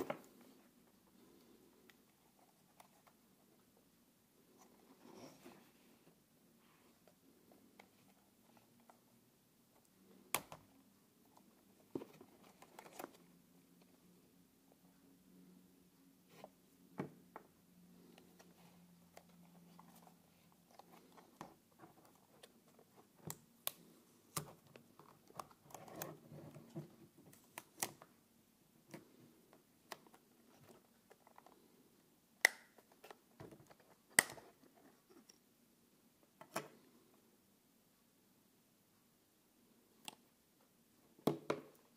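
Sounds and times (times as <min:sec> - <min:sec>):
sharp plastic snaps: 0:32.4 - 0:33.2.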